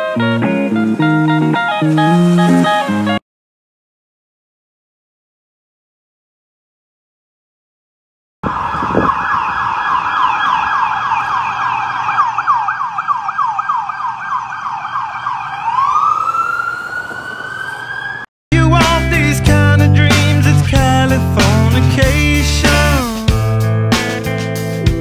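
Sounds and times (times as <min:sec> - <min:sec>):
police siren yelping and wailing: 0:08.4 - 0:18.3
rock song with guitar: 0:18.5 - 0:25.0.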